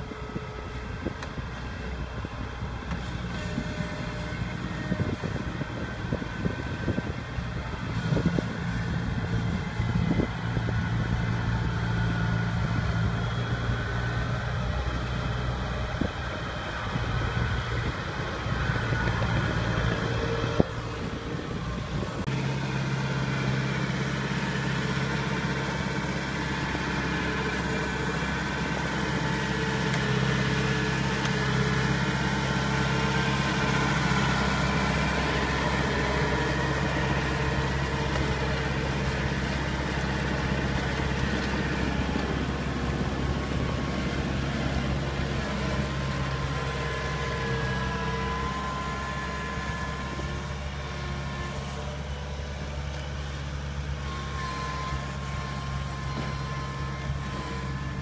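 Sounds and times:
combine harvester diesel engine: 0:00.0 - 0:58.0.

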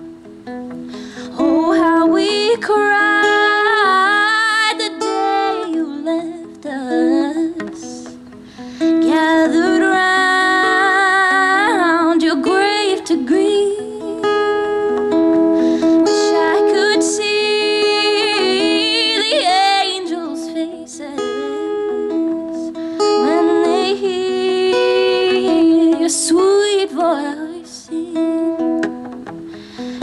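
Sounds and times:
acoustic guitar strummed and plucked: 0:00.0 - 0:30.0
person singing: 0:01.0 - 0:28.9.

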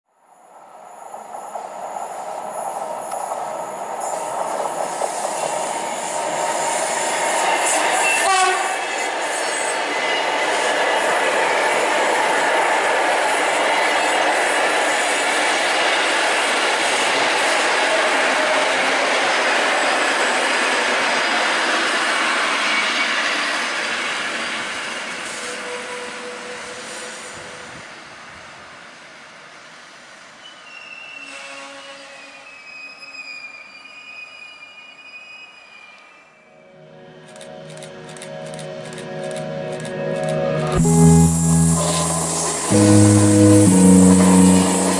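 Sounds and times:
train wheels rolling on rail: 0:00.5 - 0:33.1
high wavering wheel squeal: 0:30.4 - 0:36.6.

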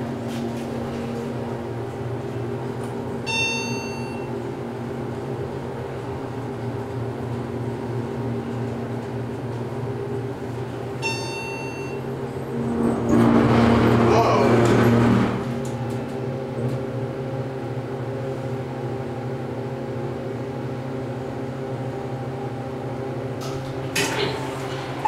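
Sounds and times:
hydraulic pump hum: 0:00.0 - 0:18.5.

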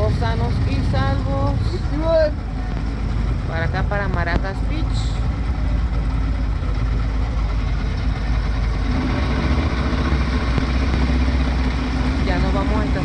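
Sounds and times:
outboard motor running: 0:00.0 - 0:13.0
water noise: 0:00.0 - 0:13.0
wind: 0:00.0 - 0:13.0.

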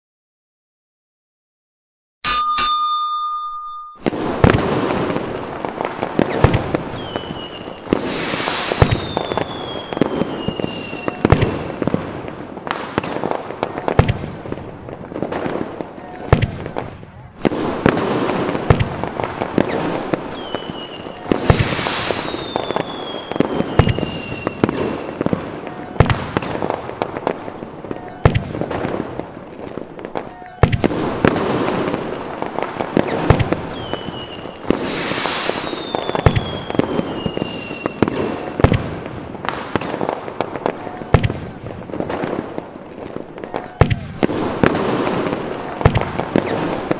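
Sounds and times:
short ringing chime: 0:02.2 - 0:04.2
fireworks bangs and crackling: 0:04.0 - 0:46.9
long falling whistle: 0:07.0 - 0:08.0.

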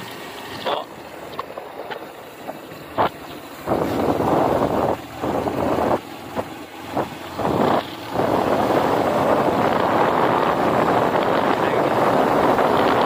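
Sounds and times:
wind buffeting microphone: 0:01.2 - 0:13.0.

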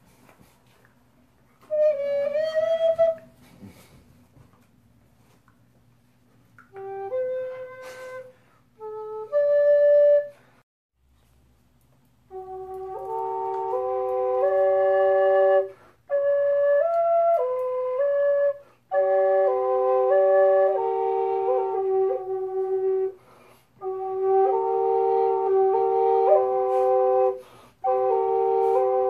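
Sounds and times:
double flute drone and melody: 0:01.6 - 0:03.8, 0:06.6 - 0:10.6, 0:12.3 - 0:29.0
player breathing: 0:26.6 - 0:27.8.

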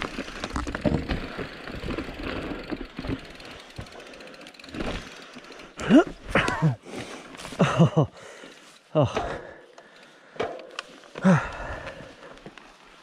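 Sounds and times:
bike frame and tyres rattling: 0:00.0 - 0:13.0.

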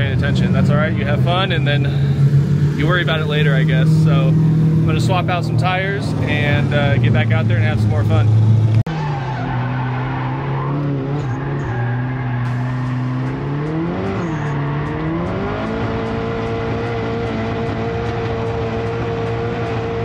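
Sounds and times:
car engine revving from inside: 0:12.8 - 0:20.0.

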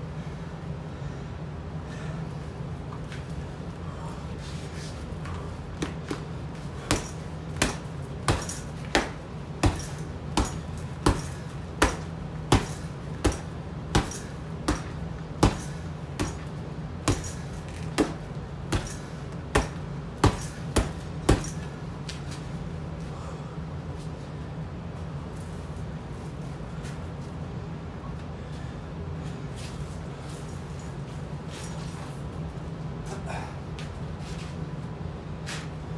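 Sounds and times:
gloves punching heavy bag: 0:05.7 - 0:21.8.

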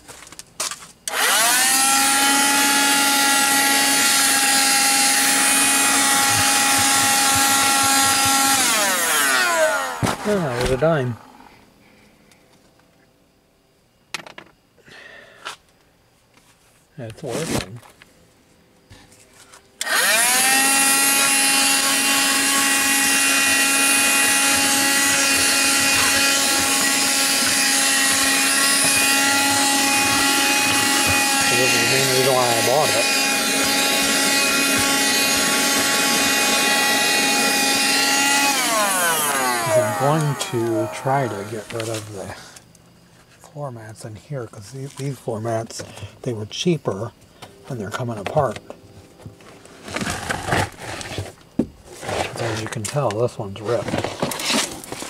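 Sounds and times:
handheld vacuum whining: 0:01.1 - 0:11.5, 0:19.8 - 0:42.4.

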